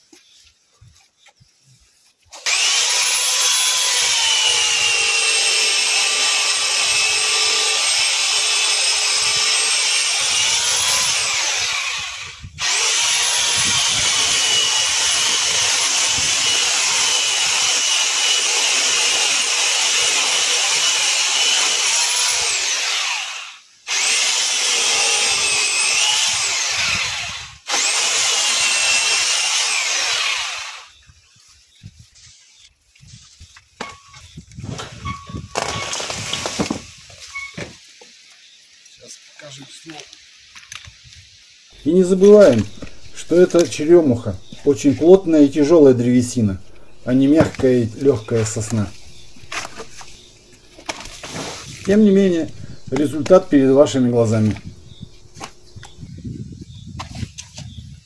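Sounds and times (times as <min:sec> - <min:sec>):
electric pole saw cutting wood: 0:02.3 - 0:31.0, 0:35.5 - 0:36.9, 0:41.7 - 0:56.1.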